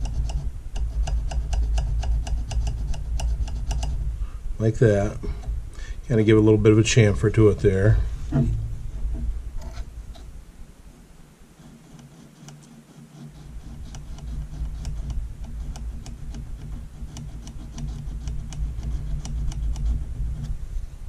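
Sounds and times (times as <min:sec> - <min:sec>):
low rubbing rumble: 0:00.0 - 0:12.0, 0:13.2 - 0:21.0
abrasive scraping metal: 0:03.5 - 0:10.4.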